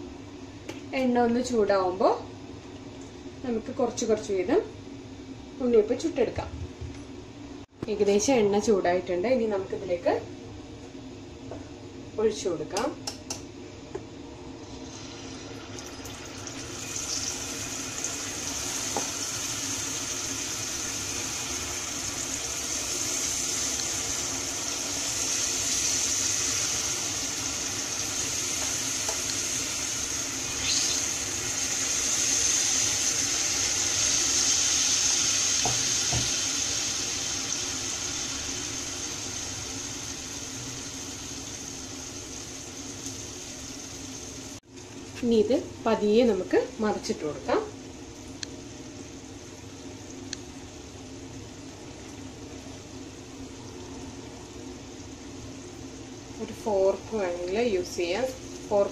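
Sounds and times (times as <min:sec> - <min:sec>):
batter sizzling in hot oil: 0:14.6 - 0:45.2, 0:54.4 - 0:58.9.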